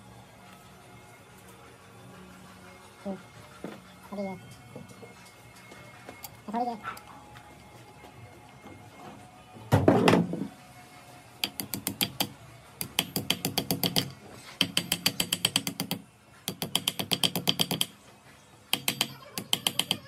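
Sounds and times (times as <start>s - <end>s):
small hammer tapping metal: 11.4s - 18.0s, 18.7s - 20.0s.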